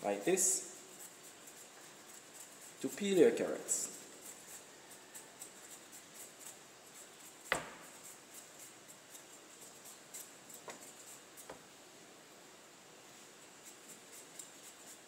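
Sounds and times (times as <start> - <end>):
knife scraping carrot: 0.2 - 11.6, 13.4 - 15.0
sharp knocks: 7.5 - 7.8.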